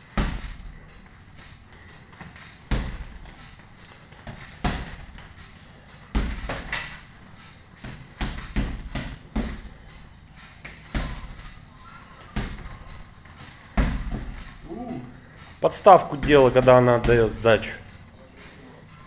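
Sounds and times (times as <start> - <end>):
boxing gloves punching a bag: 0.0 - 0.8, 2.2 - 3.4, 4.1 - 5.3, 6.1 - 7.0, 7.8 - 9.9, 10.6 - 11.6, 12.2 - 14.6.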